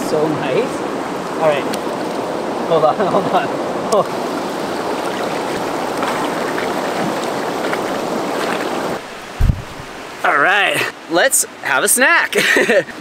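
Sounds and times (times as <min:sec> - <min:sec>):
river water rushing: 0:00.0 - 0:11.8
low thump: 0:09.1 - 0:10.0.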